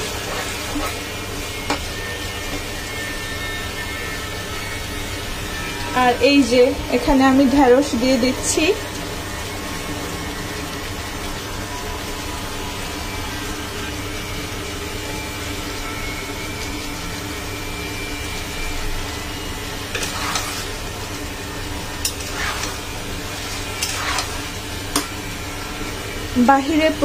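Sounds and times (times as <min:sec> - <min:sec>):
steady mechanical drone: 0:00.0 - 0:27.0
vegetables sizzling in a pan: 0:00.0 - 0:27.0
metal spatula scraping a pan: 0:19.8 - 0:21.0, 0:21.9 - 0:25.9.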